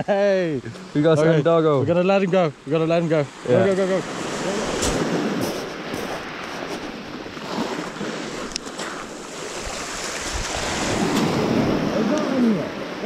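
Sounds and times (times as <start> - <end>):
sea waves washing in: 0.8 - 13.0
wind on microphone: 4.1 - 13.0.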